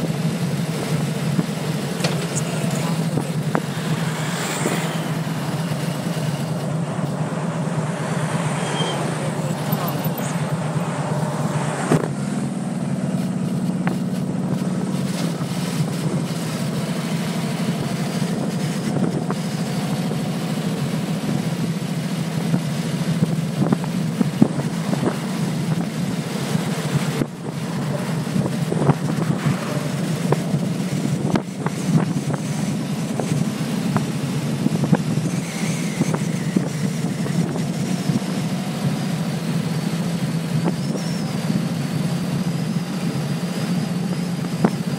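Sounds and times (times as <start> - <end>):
motorcycle engine cruising: 0.0 - 44.9
wind rushing over microphone: 22.4 - 44.9.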